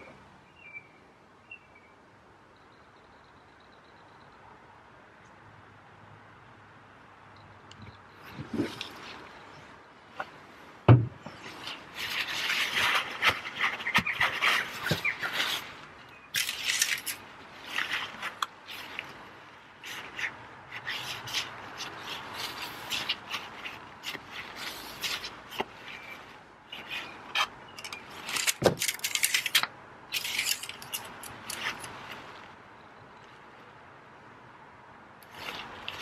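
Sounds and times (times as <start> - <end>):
paper towel rustling and rubbing: 11.3 - 27.3.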